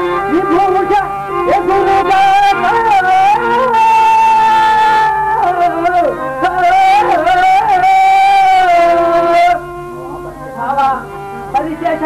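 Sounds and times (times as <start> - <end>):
pitched musical accompaniment: 0.0 - 12.0
man singing: 0.4 - 9.6.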